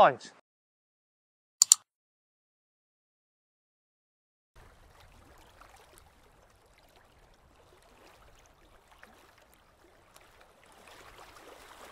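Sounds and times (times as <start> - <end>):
small ticks and splashes: 4.6 - 11.9
small waves lapping: 4.6 - 11.9.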